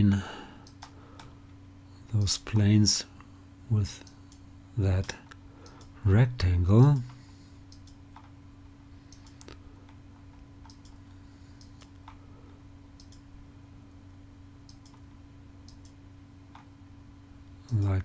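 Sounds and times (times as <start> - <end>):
faint low hum: 0.0 - 18.0
computer mouse clicking: 0.6 - 1.3, 7.0 - 8.3, 9.1 - 9.6, 10.6 - 11.0, 11.6 - 12.2, 13.0 - 13.2, 14.7 - 15.0, 15.7 - 16.7.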